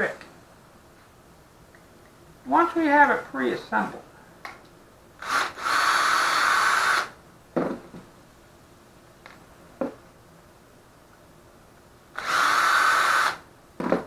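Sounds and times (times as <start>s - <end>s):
cordless drill driving screw: 5.2s - 7.2s, 12.2s - 13.4s.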